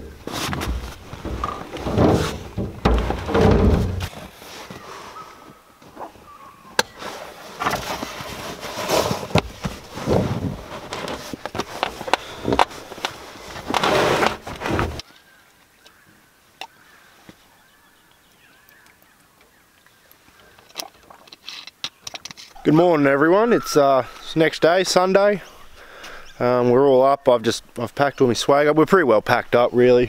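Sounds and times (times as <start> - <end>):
canvas rustling: 0.0 - 6.2, 6.9 - 15.0
scraping and knocks on metal tray: 0.4 - 4.1
faint bird calls: 4.6 - 7.2, 15.0 - 21.1, 25.4 - 26.6.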